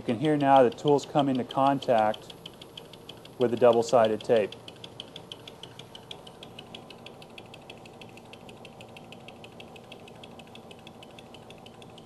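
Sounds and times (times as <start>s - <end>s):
metal lathe running: 0.0s - 11.9s
faint rapid ticking: 0.0s - 12.0s.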